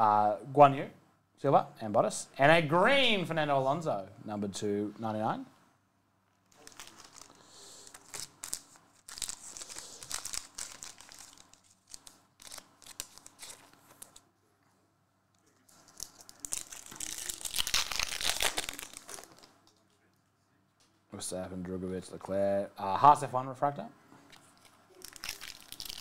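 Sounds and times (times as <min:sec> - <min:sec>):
foil wrapper crinkling: 0:06.5 - 0:14.2, 0:15.6 - 0:19.6, 0:24.6 - 0:26.0
foil wrapper tearing: 0:06.5 - 0:14.2, 0:15.7 - 0:19.6, 0:24.9 - 0:26.0.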